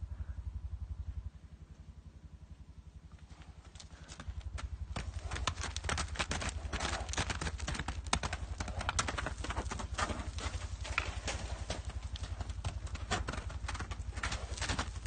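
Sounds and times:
horse hooves on rocky ground: 3.2 - 15.0.

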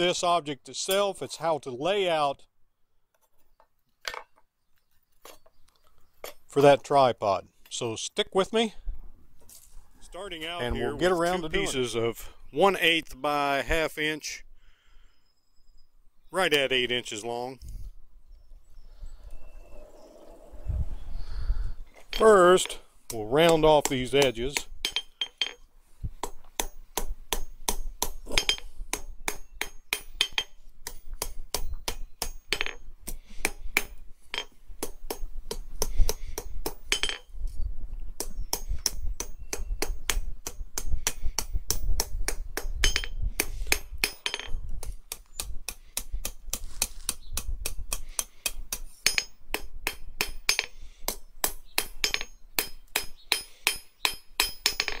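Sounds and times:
hammer striking steel on anvil: 47.9 - 55.0.

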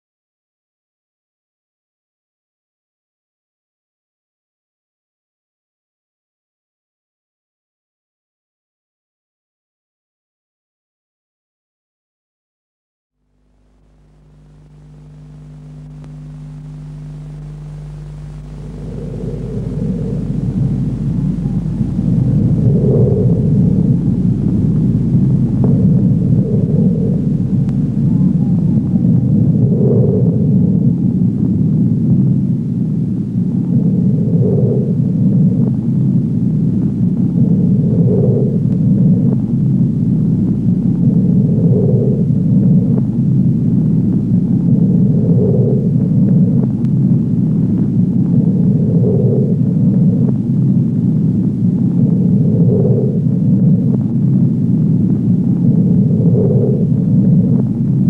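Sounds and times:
film projector rumble: 13.3 - 58.0
faint clicks: 15.8 - 28.2.

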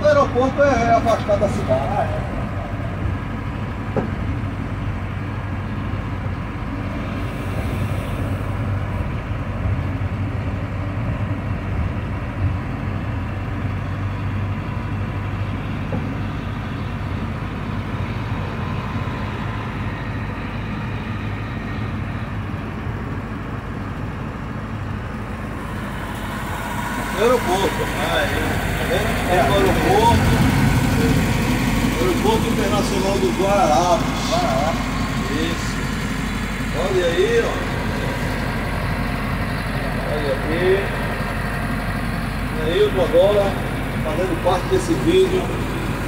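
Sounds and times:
bus engine drone: 0.0 - 46.0
road noise: 0.0 - 46.0.

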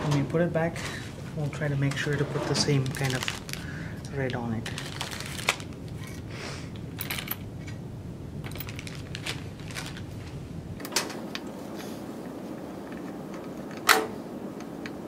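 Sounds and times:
plastic bag rustling: 0.2 - 7.7, 8.4 - 10.8.

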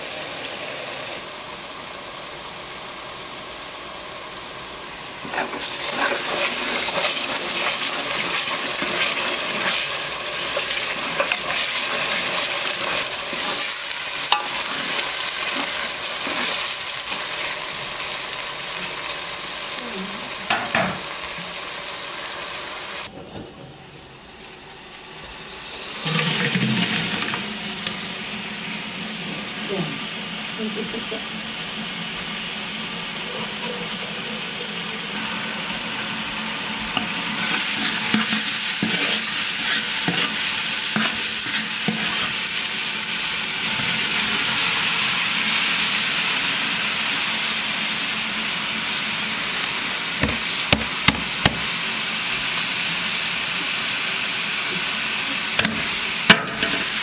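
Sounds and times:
onions sizzling in oil: 0.0 - 23.1, 23.8 - 57.0
scraping in a pot: 5.2 - 17.2, 37.0 - 42.4.

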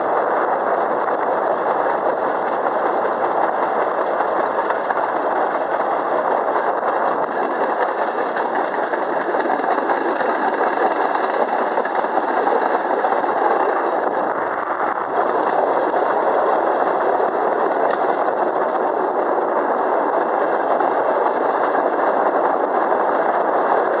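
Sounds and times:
rail vehicle running on track: 0.0 - 24.0.

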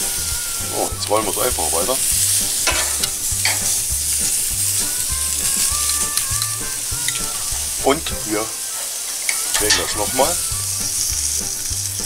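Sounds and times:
meat sizzling on grill: 0.0 - 12.0
grill tongs clicking: 1.0 - 7.5, 8.8 - 10.3.

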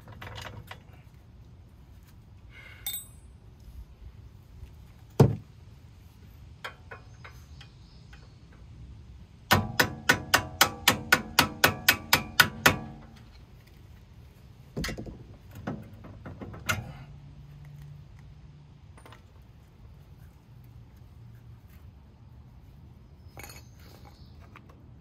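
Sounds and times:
metal-on-metal strikes ringing: 2.8 - 3.3.

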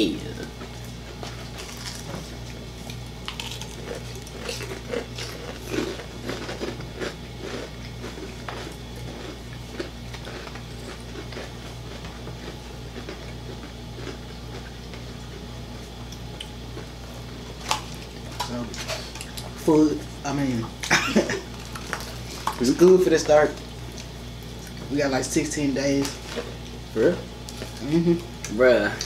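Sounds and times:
chewing: 0.4 - 16.9, 20.8 - 23.0
biting crispy fried chicken: 0.7 - 19.6.

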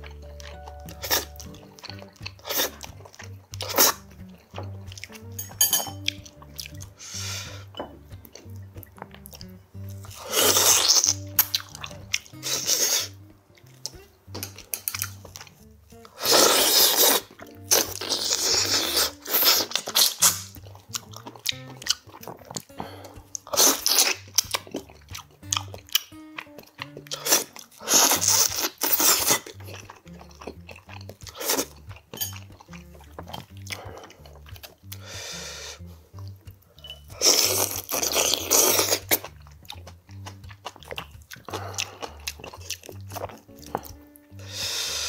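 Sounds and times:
soft background music: 0.0 - 45.0
sucking and chewing: 0.0 - 45.0.

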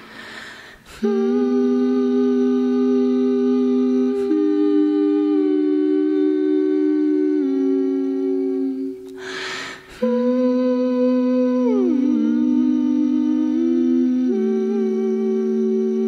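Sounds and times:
women humming in harmony: 0.9 - 16.0
breathy rushing air: 9.2 - 10.0.

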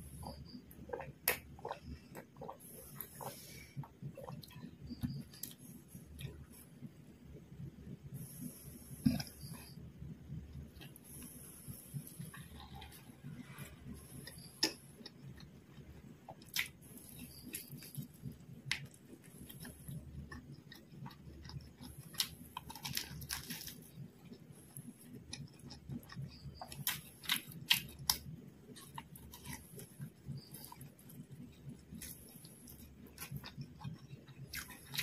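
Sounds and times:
chewing and biting: 0.1 - 6.6, 14.0 - 35.0.

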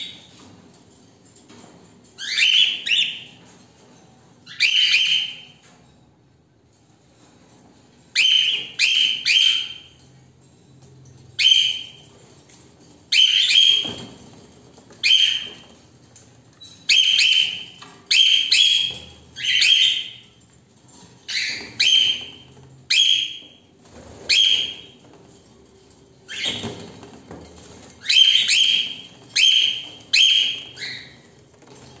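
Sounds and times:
cockatiels calling harshly: 16.9 - 20.2, 21.3 - 23.4, 28.0 - 31.2.

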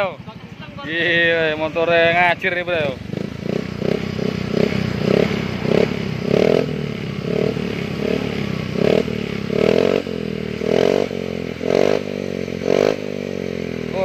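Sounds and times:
scooter engine revving: 0.0 - 14.0.

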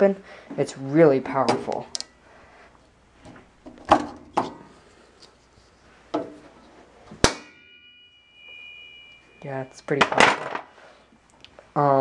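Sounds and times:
lid snapping with ringing tone: 7.2 - 9.3.

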